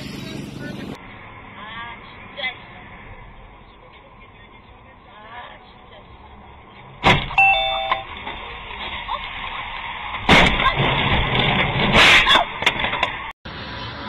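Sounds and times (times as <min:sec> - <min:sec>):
road noise inside car: 0:00.0 - 0:14.0
car crash impacts: 0:10.1 - 0:13.2.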